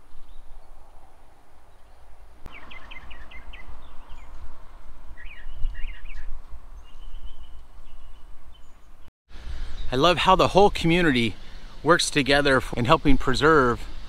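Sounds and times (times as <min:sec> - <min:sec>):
small birds chirping: 0:01.7 - 0:14.0.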